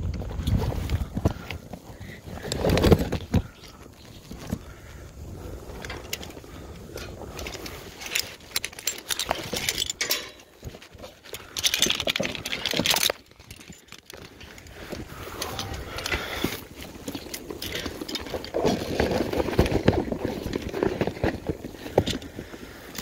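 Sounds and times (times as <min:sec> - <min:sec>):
metal pieces clinking: 0:07.4 - 0:10.8, 0:11.5 - 0:14.2.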